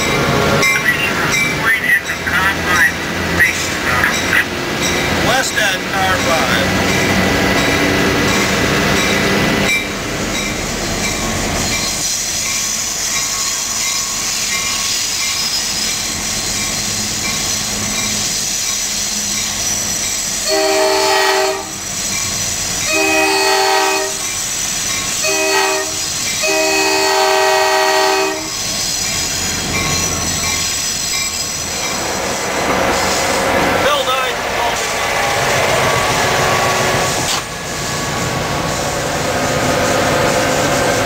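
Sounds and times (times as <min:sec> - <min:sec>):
locomotive air horn: 0:20.4 - 0:21.8, 0:22.9 - 0:24.2, 0:25.2 - 0:28.6
wheels on rails: 0:28.6 - 0:41.0.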